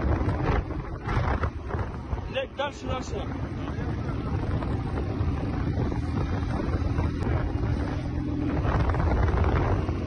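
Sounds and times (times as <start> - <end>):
off-road vehicle engine: 0.0 - 10.0
wind rushing over microphone: 0.0 - 10.0.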